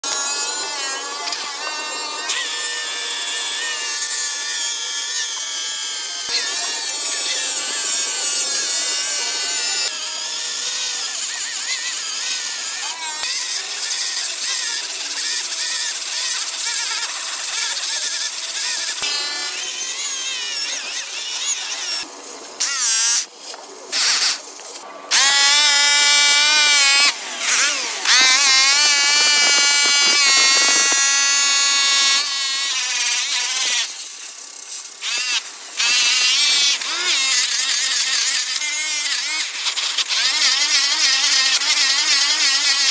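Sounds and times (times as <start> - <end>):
electric polisher high whine: 0.0 - 13.4, 25.1 - 34.4, 35.0 - 42.9.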